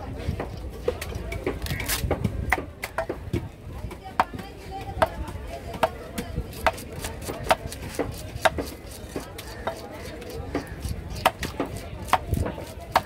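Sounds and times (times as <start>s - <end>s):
cleaver chopping on wooden block: 5.0s - 13.0s.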